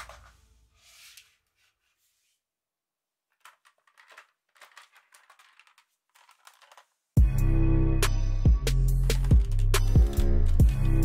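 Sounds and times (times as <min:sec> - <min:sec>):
plastic toy rifle handled: 0:03.3 - 0:07.0.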